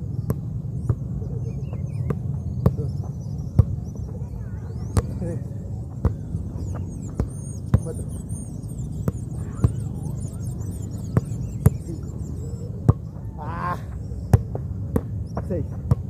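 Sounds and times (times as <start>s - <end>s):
steady low hum: 0.0s - 16.0s
football kicks: 1.7s - 3.8s, 4.9s - 8.0s, 14.3s - 16.0s.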